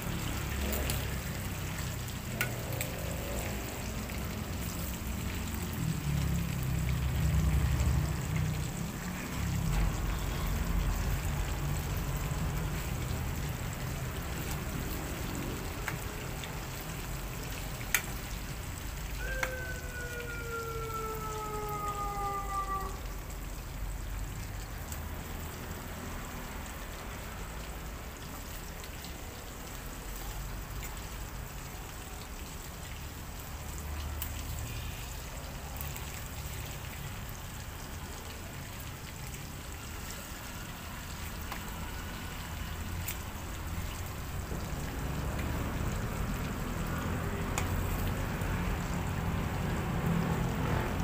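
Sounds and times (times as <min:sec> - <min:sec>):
pork sizzling in oil: 0:00.0 - 0:51.0.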